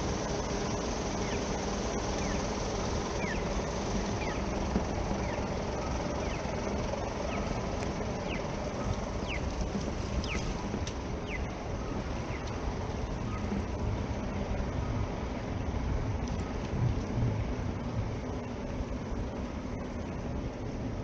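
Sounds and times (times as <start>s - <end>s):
bird chirping: 0.0s - 15.0s
road traffic rumble: 0.0s - 21.0s.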